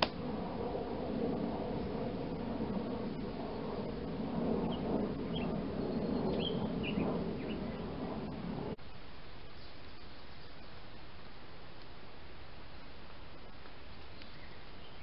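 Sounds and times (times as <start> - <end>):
steady rushing hiss: 0.0 - 15.0
high bird chirps: 4.7 - 7.9.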